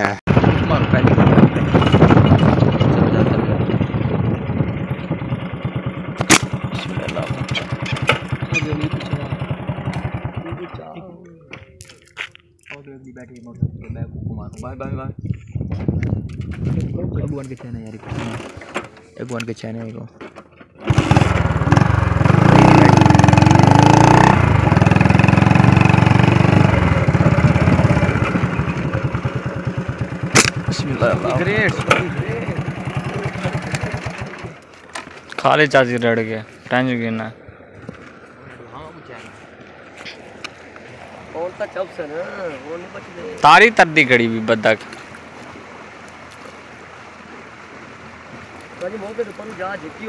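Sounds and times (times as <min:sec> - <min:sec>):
motorcycle engine idling: 0:00.3 - 0:11.7, 0:20.8 - 0:35.2
sharp click: 0:30.4 - 0:30.6.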